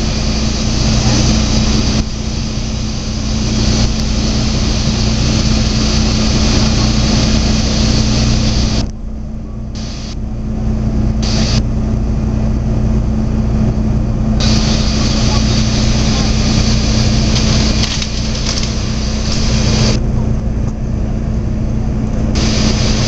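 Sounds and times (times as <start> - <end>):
loud steady hydraulic hiss: 0.0 - 8.9, 9.8 - 10.2, 11.2 - 11.6, 14.4 - 20.0, 22.4 - 23.0
tow truck engine running: 0.0 - 23.0.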